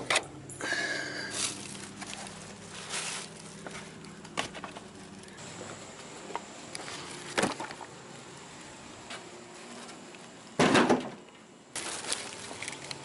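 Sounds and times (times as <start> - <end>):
rustling: 1.1 - 5.4, 11.8 - 13.0
car hood clunking open: 10.6 - 11.2.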